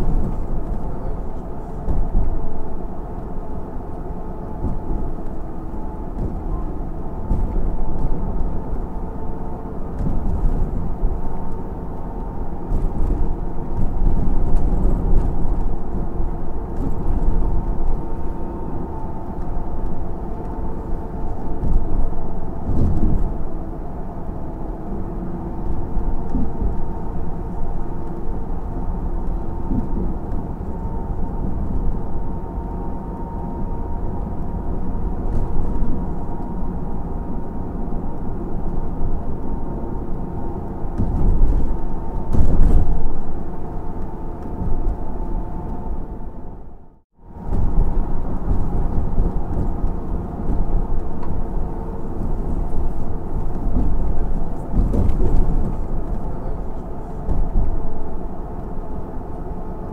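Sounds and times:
tyres rumbling inside moving car: 0.0s - 59.9s.

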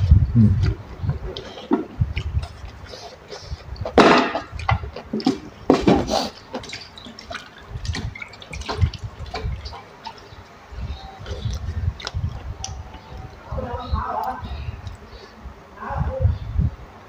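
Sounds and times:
lip smacks: 0.4s - 10.6s, 11.2s - 13.3s
wet chewing and slurping: 0.4s - 13.4s.

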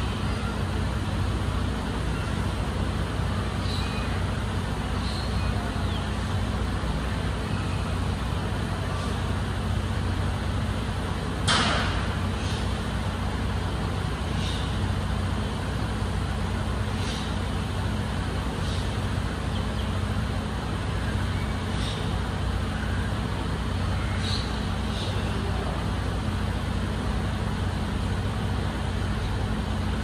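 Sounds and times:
truck engine idling: 0.0s - 30.0s
air brake hiss: 12.3s - 12.8s.

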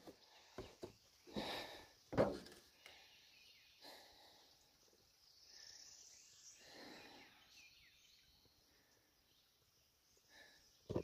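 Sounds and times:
insect hiss: 2.7s - 10.9s.

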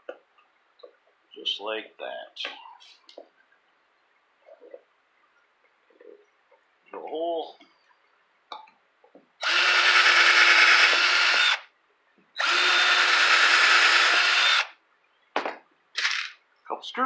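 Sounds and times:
cordless drill boring into wood: 9.4s - 11.7s, 12.4s - 14.8s.

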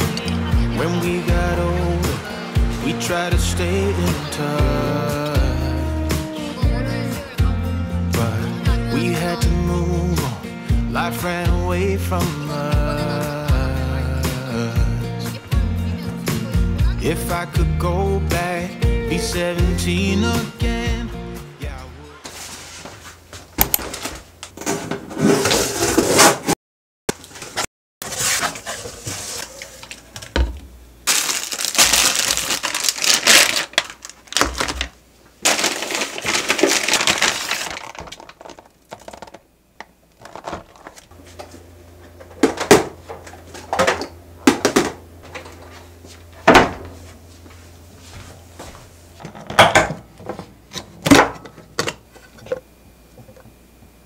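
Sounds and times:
packaging rustling and crinkling: 31.1s - 39.4s
plastic containers clicking and knocking: 35.5s - 41.0s.

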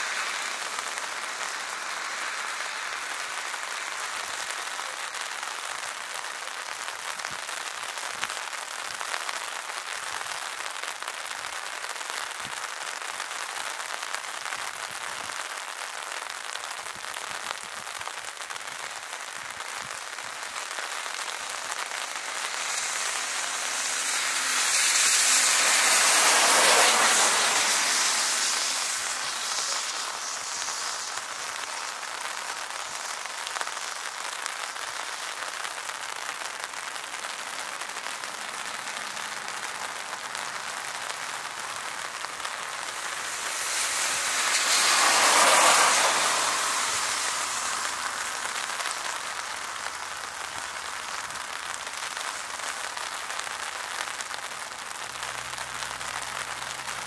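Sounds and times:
rain hissing: 0.0s - 57.0s
jet engine passing: 21.0s - 32.8s, 40.8s - 49.9s.

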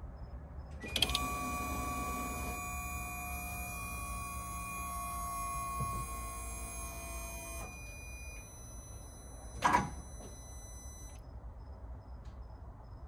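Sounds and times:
faint regular beeping: 0.6s - 13.0s
high electrical whines: 0.8s - 11.2s.

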